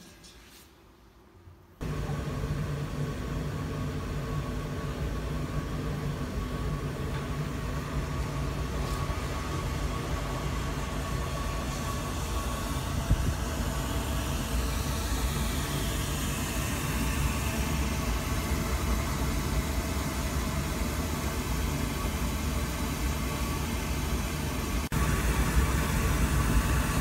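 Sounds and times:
oil heater low rumble: 1.8s - 27.0s.

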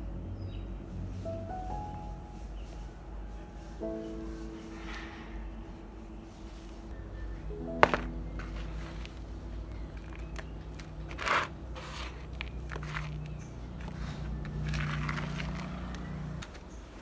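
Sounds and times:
soil scraping in plastic basin: 10.0s - 16.0s.

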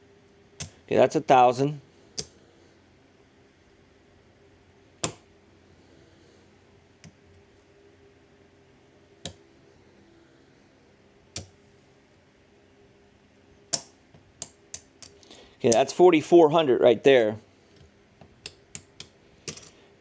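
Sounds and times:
casino chips clicking: 18.4s - 19.8s.

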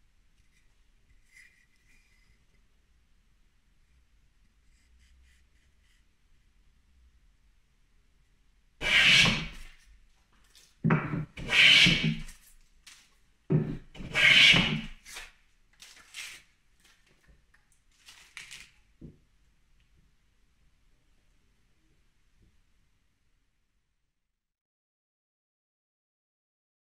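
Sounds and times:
hand plane scraping on wood: 8.8s - 9.7s, 10.9s - 12.4s, 13.5s - 15.2s.

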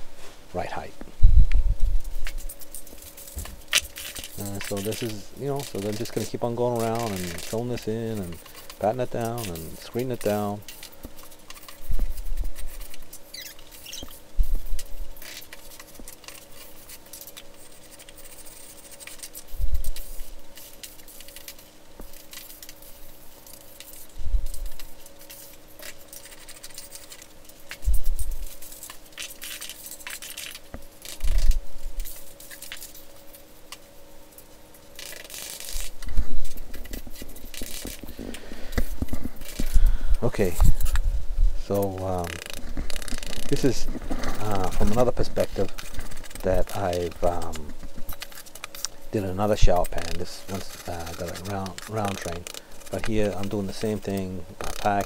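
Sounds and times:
faint steady hum: 0.0s - 55.0s
trowel scraping gritty mortar: 3.8s - 10.6s, 48.3s - 55.0s.

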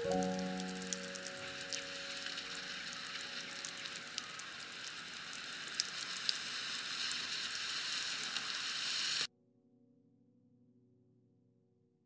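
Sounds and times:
heavy rain falling: 0.0s - 9.3s.

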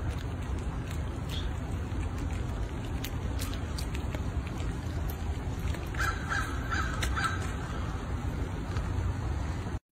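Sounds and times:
steady low rumble: 0.0s - 9.8s
crow cawing: 6.0s - 7.9s.

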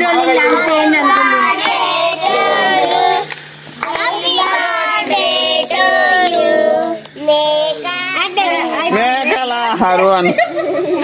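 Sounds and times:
children singing together: 0.0s - 8.8s.

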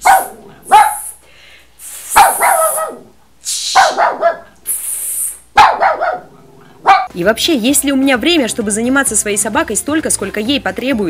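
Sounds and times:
small dog barking: 0.0s - 1.2s, 2.1s - 3.1s, 3.8s - 4.5s, 5.6s - 7.1s
woman shushing: 3.4s - 4.0s.

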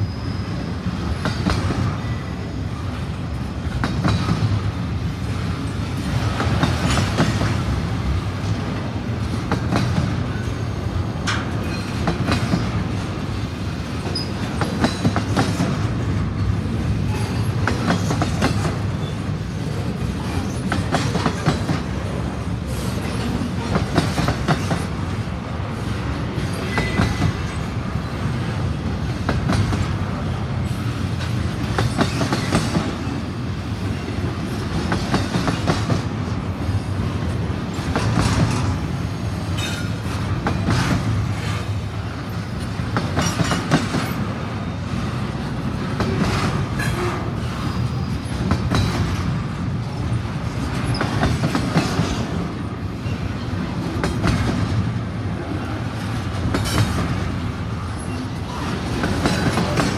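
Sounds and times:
freight train rumble: 0.0s - 59.9s
wheels clicking over rail joints: 42.3s - 44.3s.

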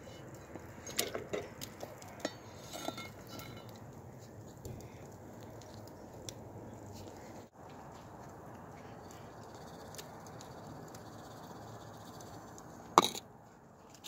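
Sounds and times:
cookware clinking on grill grate: 0.8s - 3.7s.

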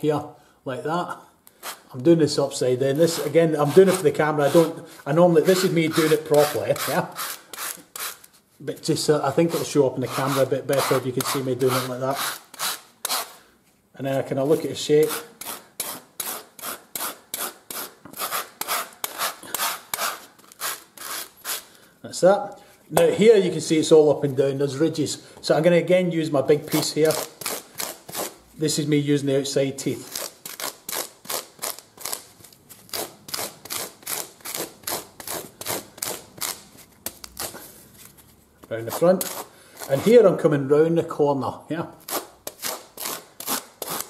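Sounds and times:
hand rasp scraping: 2.9s - 8.3s, 9.4s - 13.4s, 15.0s - 21.7s, 42.1s - 44.0s
rasp scraping wood: 3.0s - 8.2s.

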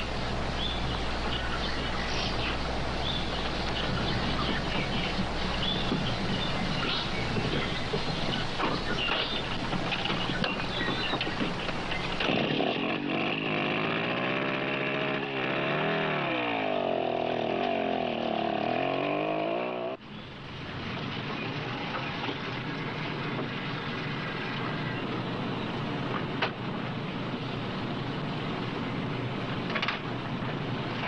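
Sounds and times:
steady engine rumble: 0.0s - 31.0s
motorcycle engine revving: 2.1s - 22.8s.

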